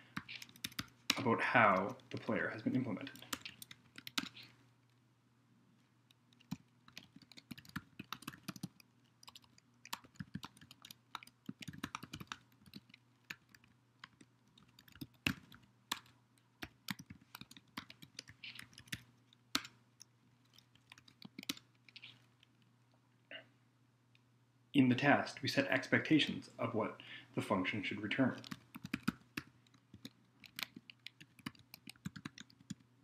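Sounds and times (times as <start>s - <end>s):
keyboard typing: 0.1s - 2.3s, 3.0s - 4.5s, 6.3s - 22.2s, 28.4s - 32.9s.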